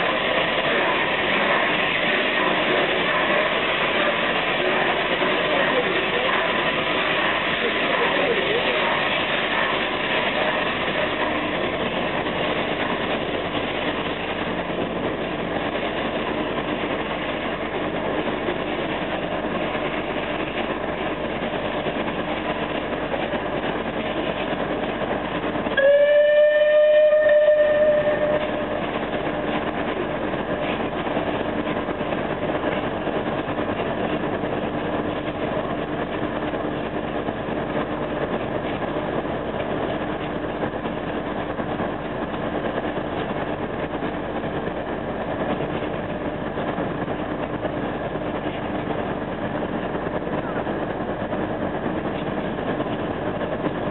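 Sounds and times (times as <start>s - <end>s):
train rolling: 0.0s - 53.9s
steam whistle: 25.8s - 28.7s.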